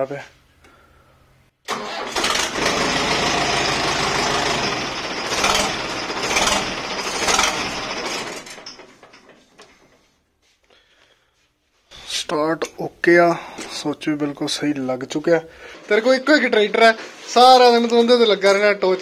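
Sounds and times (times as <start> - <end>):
diesel tractor engine running: 1.7 - 9.1
tractor self-starter cranking: 1.7 - 9.9.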